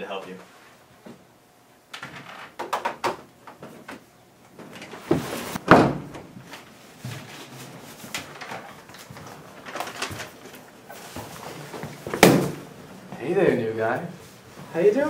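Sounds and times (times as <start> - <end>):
door thudding shut: 5.6 - 6.3, 12.1 - 12.6.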